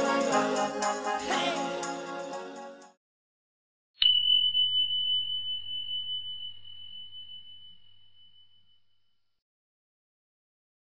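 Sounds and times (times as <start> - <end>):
bell ding: 4.0 - 8.8.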